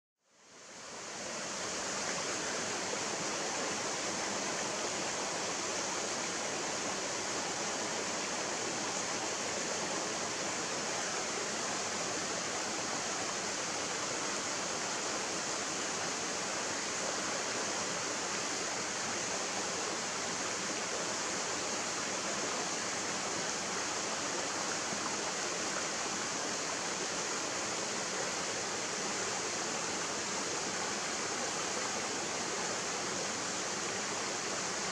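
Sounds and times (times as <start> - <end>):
stream flowing over rocks: 0.3 - 34.9.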